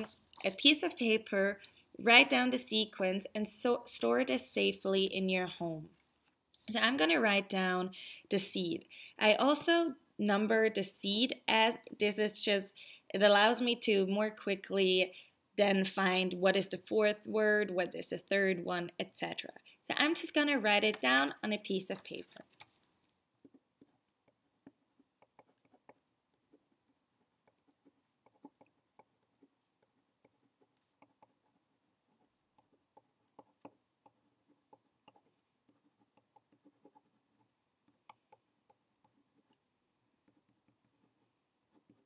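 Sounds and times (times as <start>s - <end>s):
pen writing on paper: 23.4s - 42.0s.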